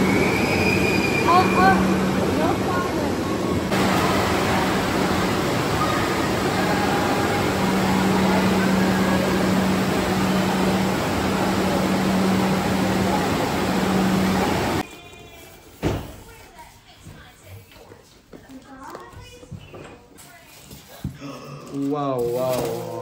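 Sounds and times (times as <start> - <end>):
machinery running: 0.0 - 14.8
water churning: 0.0 - 14.8.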